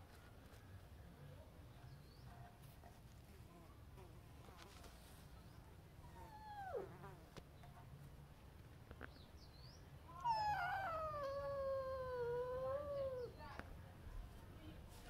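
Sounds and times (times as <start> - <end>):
cat meowing: 6.1 - 7.0, 10.2 - 13.3.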